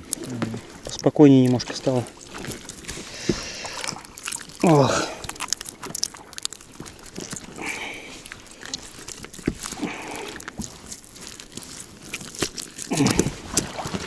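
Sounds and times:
small clicks and crunches: 0.0 - 14.0
wet net crackling and rustling: 0.0 - 14.0.

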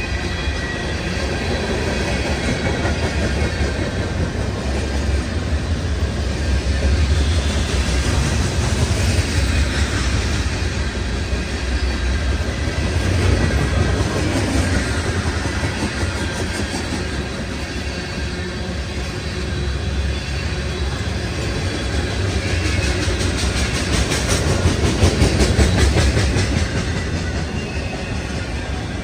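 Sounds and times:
train wheels rumbling and clacking: 0.0 - 29.0.

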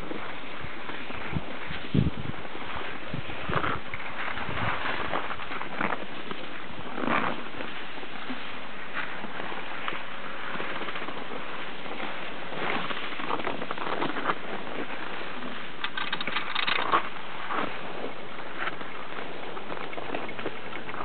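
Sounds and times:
ski lift rollers clicking and rattling: 11.9 - 21.0.

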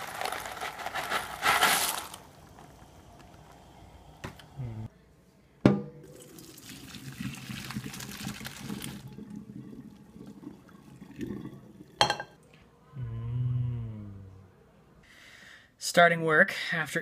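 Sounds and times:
water splashing into metal sink: 6.1 - 12.3.

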